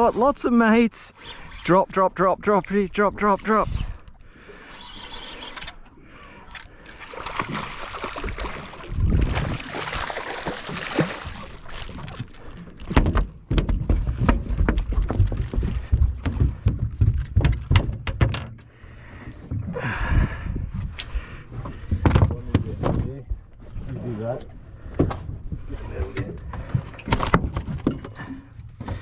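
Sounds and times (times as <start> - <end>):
water splashing: 7.0 - 13.0.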